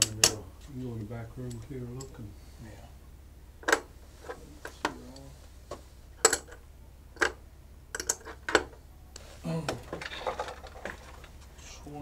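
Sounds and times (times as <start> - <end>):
coins clicking and clinking: 7.9 - 8.6.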